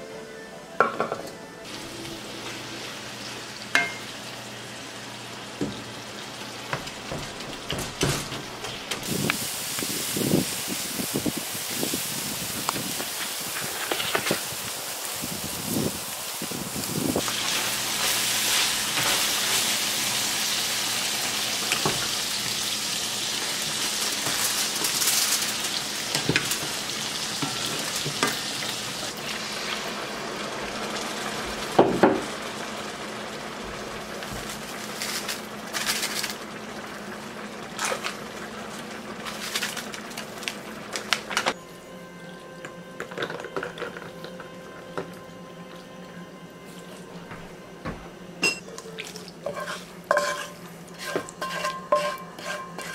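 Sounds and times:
meat sizzling: 0:01.7 - 0:41.4
utensils clinking against pans: 0:03.7 - 0:04.1, 0:48.4 - 0:52.9.

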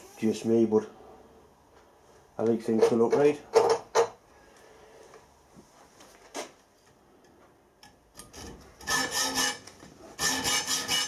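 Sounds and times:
hacksaw cutting steel: 0:08.2 - 0:11.0.

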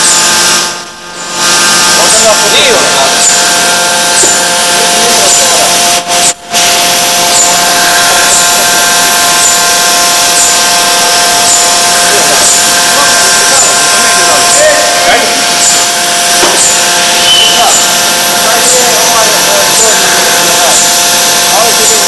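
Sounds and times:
machine whine and hiss: 0:00.0 - 0:22.0
faint high chirp: 0:17.2 - 0:17.9.

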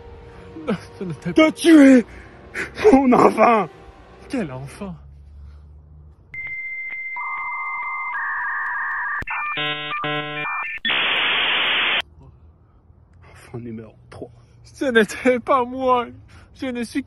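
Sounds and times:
high electronic beep: 0:06.4 - 0:11.2
pulsing electronic chords: 0:09.3 - 0:11.2.

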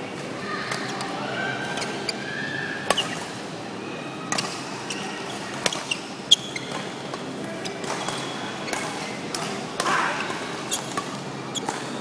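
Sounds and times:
shoes squeaking on court floor: 0:01.6 - 0:02.2, 0:02.9 - 0:03.3, 0:04.3 - 0:09.5, 0:10.2 - 0:12.0
rackets hitting shuttlecock: 0:06.7 - 0:11.9.

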